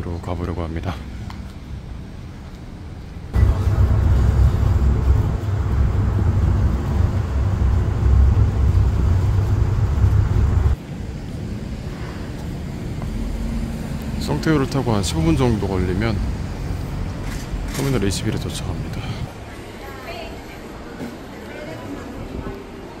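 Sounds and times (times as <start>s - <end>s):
truck engine and road rumble: 0.0s - 19.5s
street sound: 0.0s - 23.0s.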